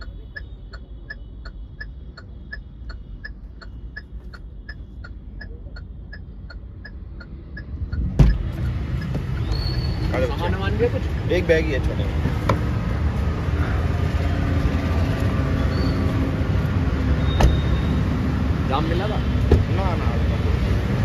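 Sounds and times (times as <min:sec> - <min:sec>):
car indicator ticking: 0:00.0 - 0:09.9
road and traffic noise: 0:00.0 - 0:21.0
loud thump: 0:08.2 - 0:08.4.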